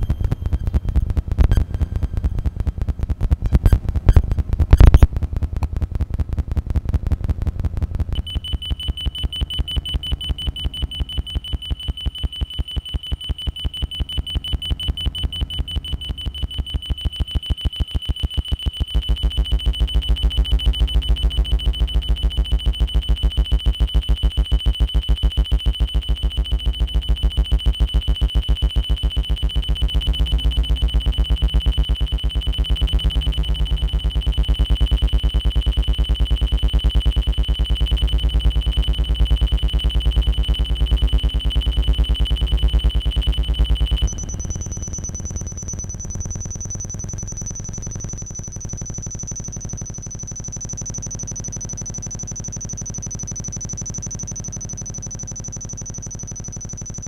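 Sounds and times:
heavy bass: 0.0s - 49.8s
buzzing low tones: 0.0s - 57.0s
fast electronic pulses: 5.8s - 57.0s
high alarm-like tone: 8.2s - 57.0s.

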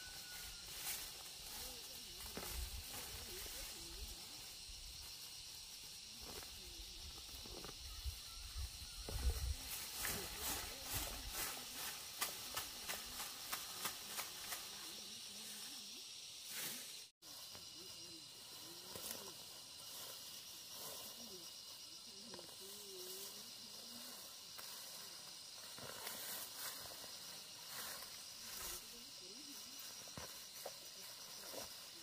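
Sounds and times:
high-pitched outdoor hiss: 0.0s - 32.0s
faint wavering voices: 20.7s - 25.3s.

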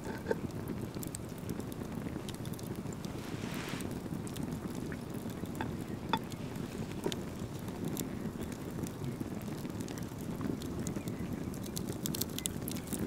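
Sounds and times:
low wind rumble on microphone: 0.0s - 13.0s
eggshell cracking and clicking: 9.9s - 13.0s.

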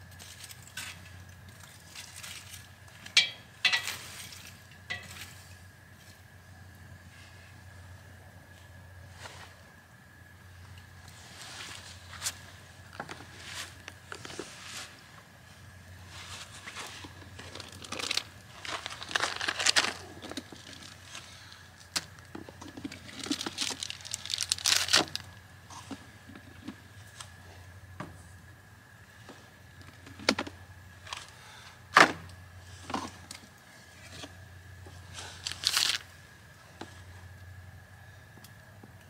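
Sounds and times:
plastic packaging crinkling: 16.8s - 21.2s, 22.7s - 25.4s, 35.2s - 36.1s.

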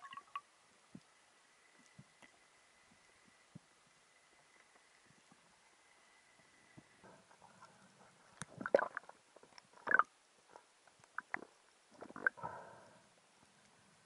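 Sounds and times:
underwater knocks and clicks: 11.1s - 12.4s.

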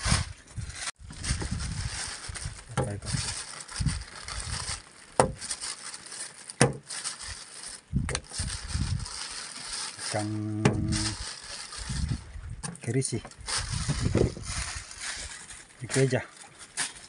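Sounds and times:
plastic bag rustling: 0.0s - 17.0s.

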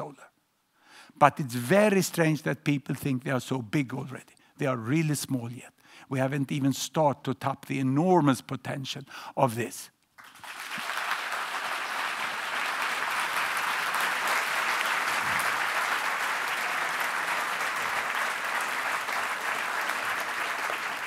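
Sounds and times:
audience applauding: 10.2s - 21.0s.

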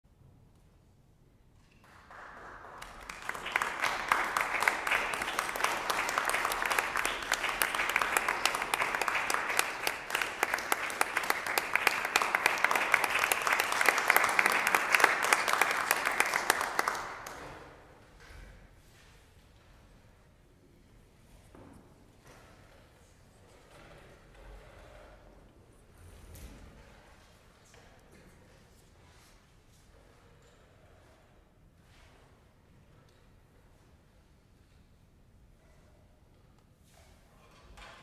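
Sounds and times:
audience applauding: 1.8s - 17.8s.

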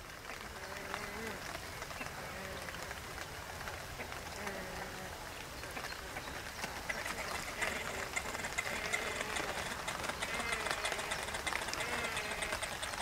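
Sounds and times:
steady outdoor hiss: 0.0s - 13.0s
birds chirping: 4.0s - 13.0s.

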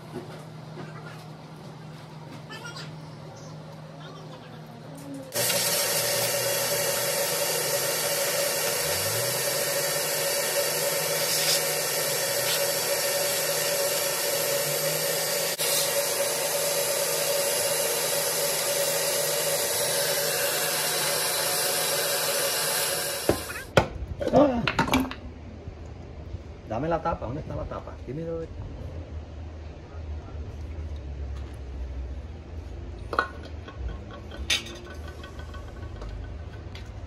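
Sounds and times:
blower running with hiss: 5.2s - 23.7s.

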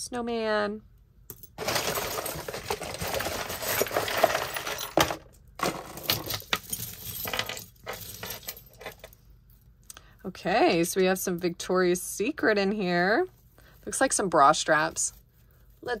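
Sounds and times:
jewelry clinking and rattling: 1.3s - 9.2s.

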